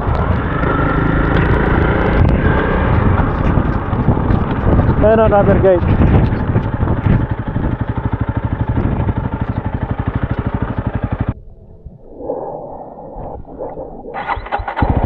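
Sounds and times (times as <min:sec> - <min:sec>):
motorcycle engine idling: 0:00.3 - 0:11.4.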